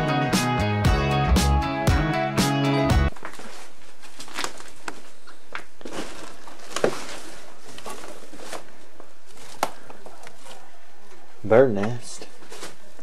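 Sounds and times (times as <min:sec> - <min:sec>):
footsteps through debris: 0:03.1 - 0:10.6.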